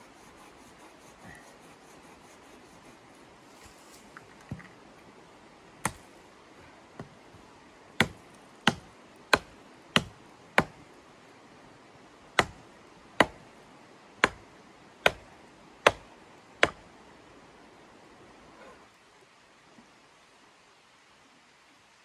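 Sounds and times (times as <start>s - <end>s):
hatchet chopping wooden pole: 5.8s - 6.0s, 8.0s - 10.8s, 12.4s - 12.6s, 13.2s - 13.4s, 14.2s - 14.4s, 15.0s - 16.8s.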